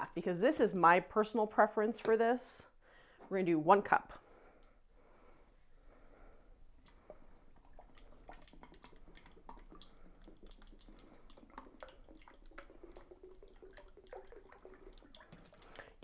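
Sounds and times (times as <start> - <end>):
liquid glugging and splashing: 6.8 - 16.0.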